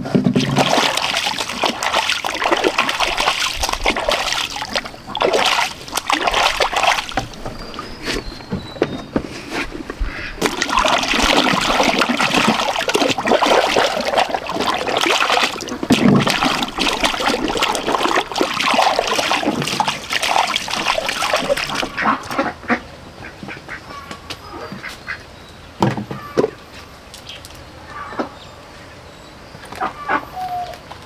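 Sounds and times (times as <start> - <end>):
ducks splashing in water: 0.1 - 8.3, 10.1 - 22.8
ducks quacking: 10.0 - 25.2.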